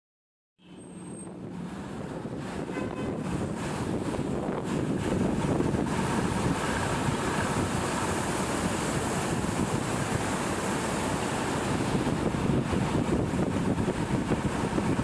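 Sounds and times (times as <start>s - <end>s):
boat engine running: 1.0s - 15.0s
wind on microphone: 1.2s - 15.0s.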